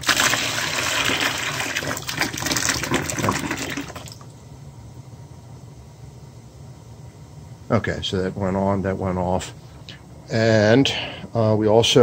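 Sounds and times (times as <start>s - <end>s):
water gushing from valve: 0.0s - 4.2s.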